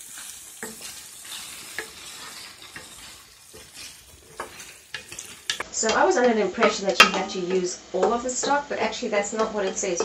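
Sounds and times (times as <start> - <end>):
wooden spoon scraping a pan: 0.0 - 5.7
rice sizzling in a pan: 0.0 - 7.8.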